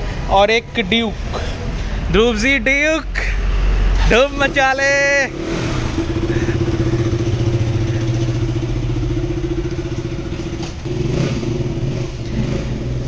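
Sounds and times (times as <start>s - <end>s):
motorcycle engine idling: 6.0s - 13.0s.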